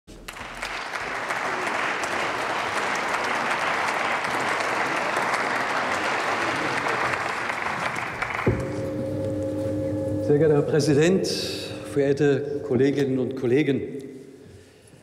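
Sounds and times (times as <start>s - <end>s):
crowd applauding: 0.1s - 9.0s.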